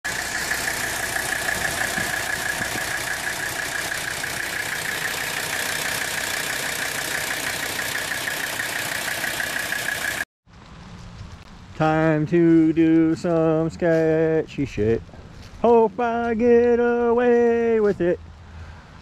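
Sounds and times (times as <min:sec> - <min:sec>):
engine idling fast: 0:00.0 - 0:10.3.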